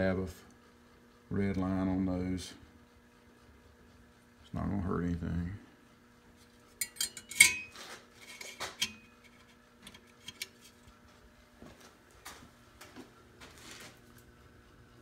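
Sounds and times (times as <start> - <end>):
metal plate clinking and rattling: 6.8 - 9.2.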